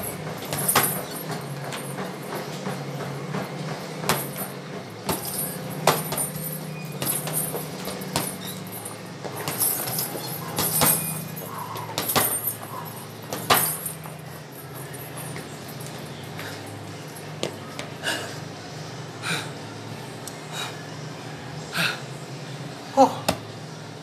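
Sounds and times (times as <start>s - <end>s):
gloves punching heavy bag: 0.0s - 2.8s, 4.0s - 14.1s.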